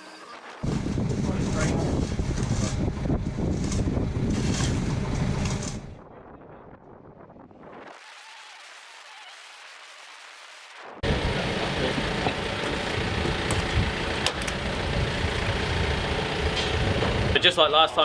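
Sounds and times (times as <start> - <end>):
forklift engine running: 11.0 - 17.9.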